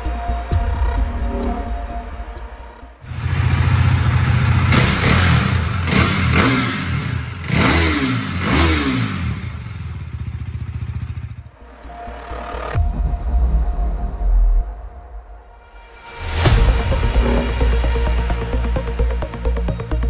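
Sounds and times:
motorcycle engine idling and revving: 0:03.0 - 0:13.1.

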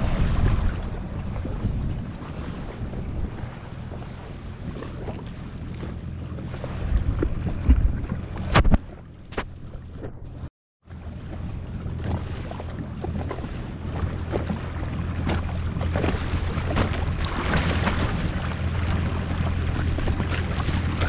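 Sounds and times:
wind on microphone: 0:00.0 - 0:10.5
jet ski engine running: 0:00.0 - 0:21.0
water rushing past hull: 0:00.0 - 0:21.0.

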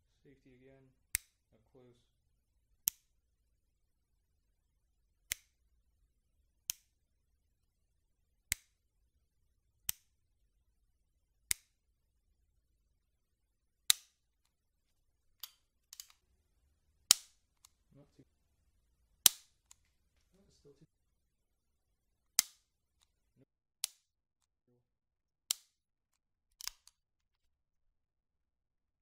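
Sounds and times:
pistol hammer clicking: 0:01.2 - 0:01.4, 0:02.9 - 0:03.1, 0:05.3 - 0:05.6, 0:06.7 - 0:07.0, 0:09.9 - 0:10.2, 0:11.5 - 0:11.8, 0:13.9 - 0:14.2, 0:15.4 - 0:16.2, 0:17.1 - 0:17.8, 0:19.2 - 0:19.9, 0:22.4 - 0:22.7, 0:23.8 - 0:24.0, 0:25.5 - 0:25.8, 0:26.6 - 0:27.0
pistol handling clicks: 0:13.9 - 0:14.2, 0:17.1 - 0:17.8, 0:19.2 - 0:19.8, 0:22.4 - 0:22.6, 0:25.5 - 0:25.7, 0:26.6 - 0:27.0.

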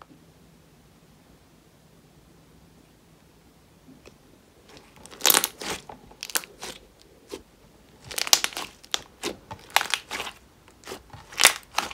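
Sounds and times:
slime crackling pops: 0:05.1 - 0:06.8, 0:08.0 - 0:11.9.

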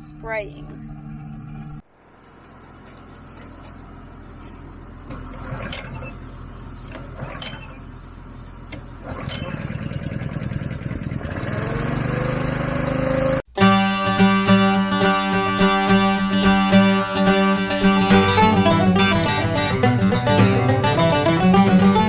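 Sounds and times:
small gas engine running: 0:02.5 - 0:22.0
recoil starter pulls: 0:02.8 - 0:13.4.

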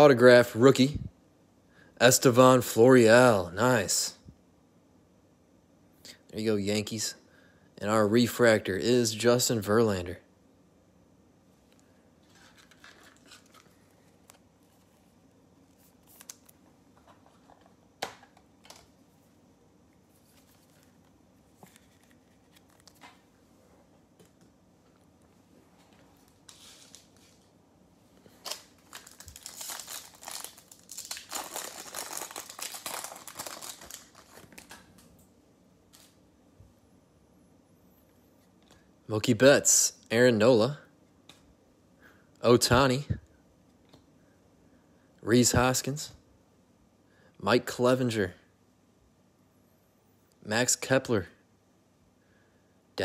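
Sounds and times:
card pack wrapper tearing and crinkling: 0:15.8 - 0:16.6, 0:28.3 - 0:35.0.

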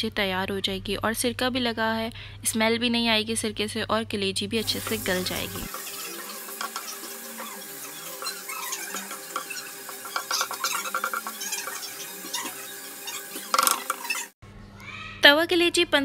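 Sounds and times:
liver sizzling: 0:04.6 - 0:14.4
spatula scraping griddle: 0:04.6 - 0:14.4.

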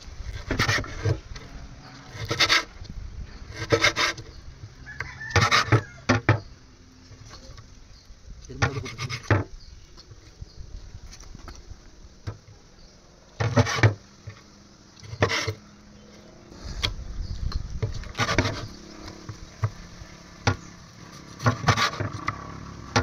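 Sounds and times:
rough rasping scraping strokes: 0:00.1 - 0:06.4, 0:08.4 - 0:09.5, 0:13.4 - 0:23.0.

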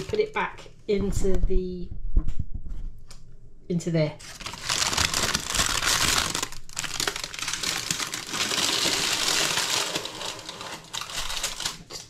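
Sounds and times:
baking parchment crinkling: 0:04.2 - 0:12.0.

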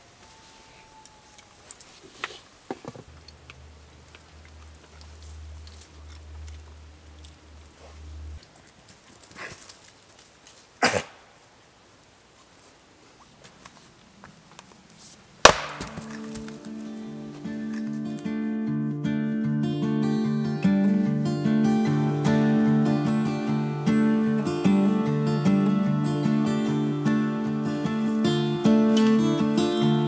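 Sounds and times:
axe splitting wood: 0:15.4 - 0:16.6.

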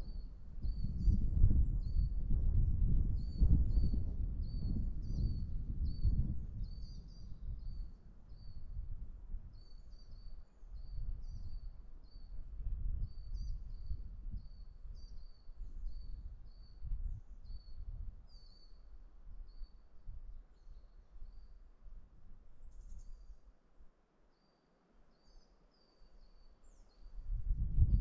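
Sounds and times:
songbird chirping: 0:22.4 - 0:27.4.

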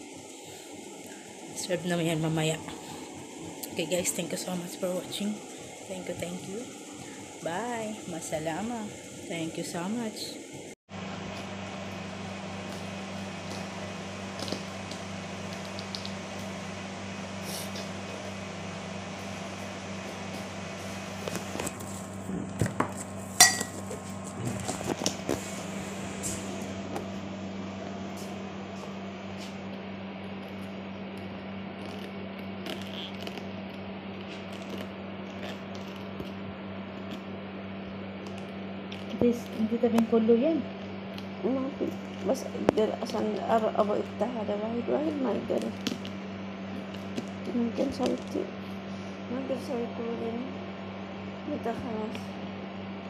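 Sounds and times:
low mechanical hum: 0:00.0 - 0:53.0
knife crunching cabbage: 0:30.2 - 0:37.3.

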